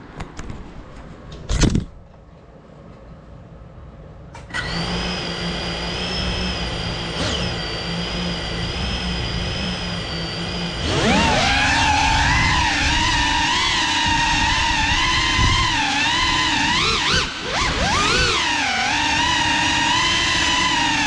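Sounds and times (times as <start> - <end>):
drone motors whining: 4.4 - 21.0.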